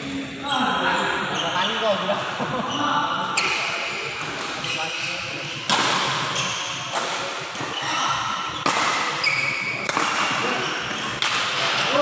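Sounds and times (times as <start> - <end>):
racket hitting shuttlecock: 5.7 - 11.9.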